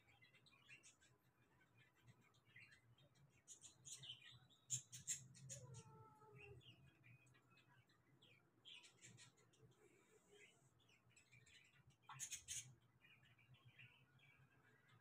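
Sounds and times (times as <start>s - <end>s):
kittens squeaking and mewing: 4.7s - 6.6s.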